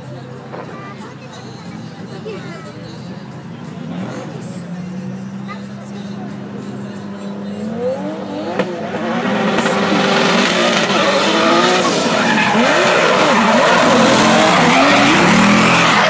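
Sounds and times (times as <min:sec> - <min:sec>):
car engines revving: 0:00.0 - 0:16.0
tyre screech: 0:10.2 - 0:16.0.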